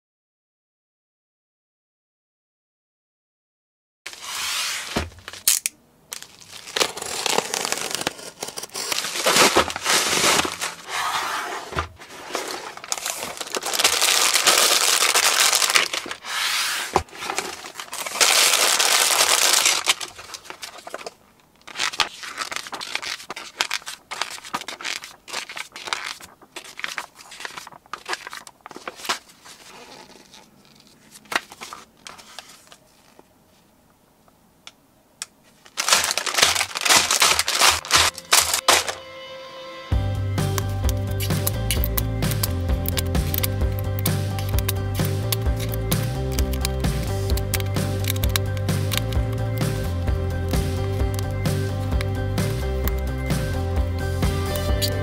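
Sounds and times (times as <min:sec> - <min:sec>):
packing tearing: 0:04.8 - 0:11.0, 0:12.0 - 0:16.3, 0:16.9 - 0:32.8, 0:35.6 - 0:39.0, 0:40.5 - 0:49.8, 0:54.5 - 0:55.0
plastic bags crinkling: 0:05.2 - 0:10.9, 0:12.0 - 0:16.3, 0:17.0 - 0:33.2, 0:35.5 - 0:39.0, 0:41.1 - 0:49.6
sharp clicks and taps: 0:40.4 - 0:49.7.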